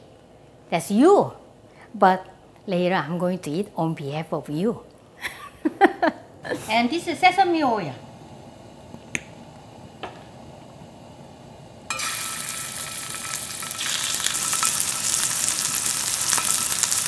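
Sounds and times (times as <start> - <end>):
meat sizzling in a frying pan: 11.9 - 17.0.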